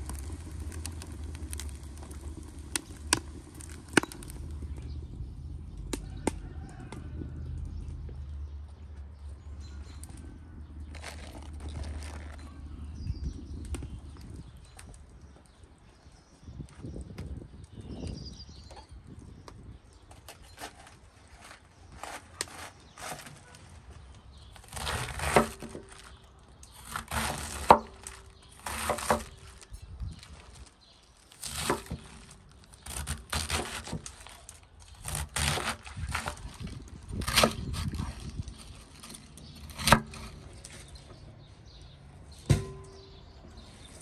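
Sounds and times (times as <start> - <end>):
crisp cracking and tearing: 0.0 - 4.7, 10.9 - 12.8, 20.2 - 41.1.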